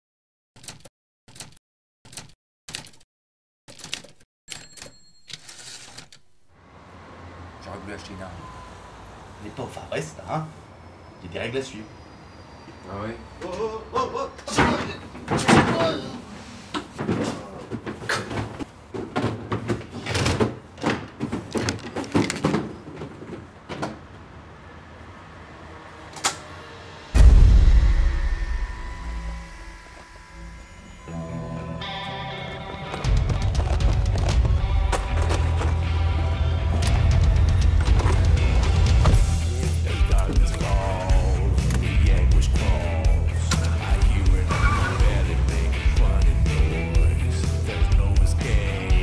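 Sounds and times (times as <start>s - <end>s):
knocks bangs and clatters: 16.8s - 24.1s
faint steady high tones: 27.2s - 32.7s.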